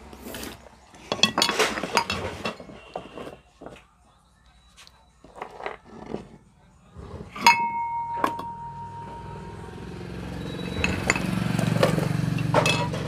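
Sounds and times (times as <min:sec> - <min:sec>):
short ringing tone: 0:07.5 - 0:11.4
vehicle engine passing by: 0:08.8 - 0:13.0
metal parts clinking: 0:10.6 - 0:13.0.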